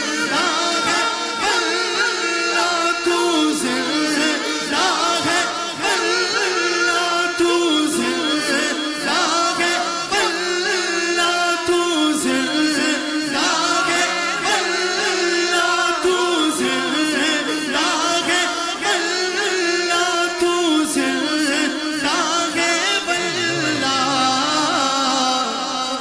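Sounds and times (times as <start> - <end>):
man singing devotional song: 0.0 - 26.0
steady held drone: 23.2 - 24.9.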